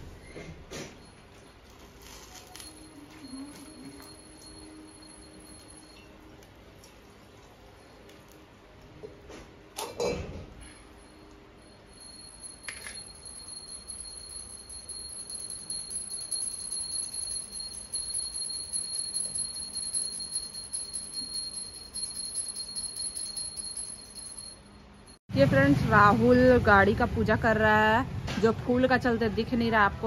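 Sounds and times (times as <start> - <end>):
brass hand bell ringing: 11.2 - 25.2.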